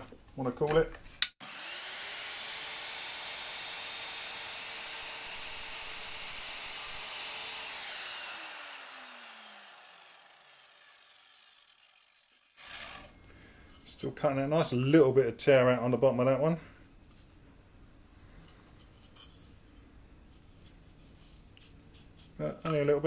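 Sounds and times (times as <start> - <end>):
mitre saw cutting wood: 1.4 - 13.2
saw blade spinning down whine: 1.4 - 13.2.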